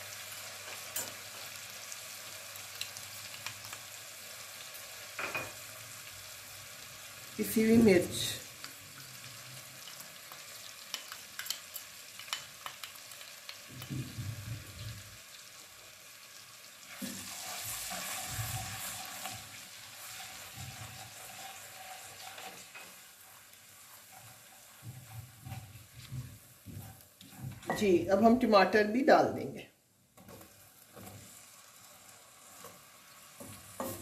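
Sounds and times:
spices sizzling in hot oil: 0.0 - 29.0, 29.8 - 34.0
spatula stirring in a pot: 16.9 - 28.0, 30.1 - 34.0.

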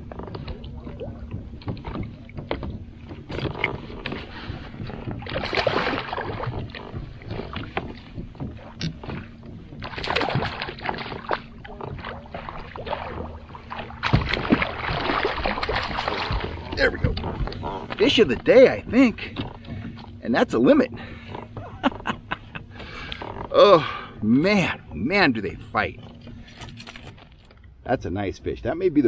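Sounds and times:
fish thrashing and splashing: 0.1 - 20.2.

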